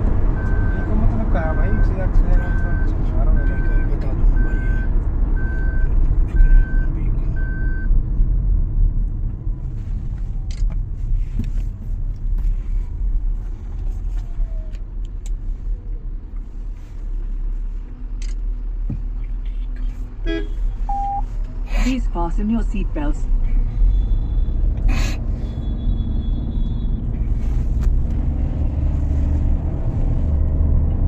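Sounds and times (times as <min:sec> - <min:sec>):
road and drivetrain rumble in car: 0:00.0 - 0:31.0
seat belt reminder beeps: 0:20.9 - 0:21.3.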